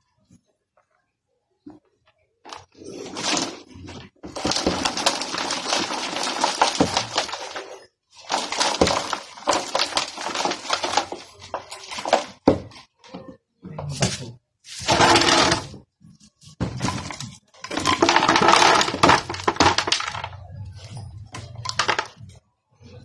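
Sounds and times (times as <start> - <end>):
soil and stones rattling through sieve: 2.5 - 12.7, 14.7 - 15.8, 16.8 - 20.4.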